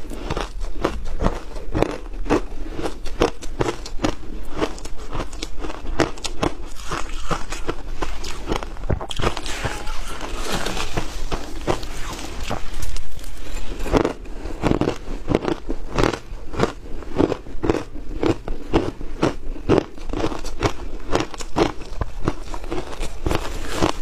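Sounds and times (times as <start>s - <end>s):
shaved ice crunching: 6.7s - 14.1s.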